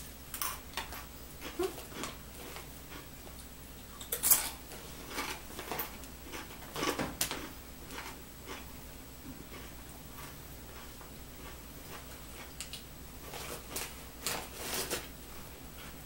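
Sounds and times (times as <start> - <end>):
chips crunching: 4.0 - 8.7.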